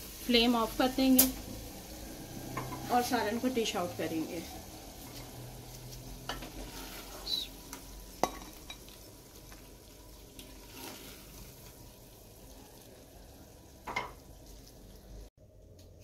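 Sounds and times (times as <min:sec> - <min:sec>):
spoon scraping pot: 0:05.0 - 0:07.4, 0:10.6 - 0:11.4.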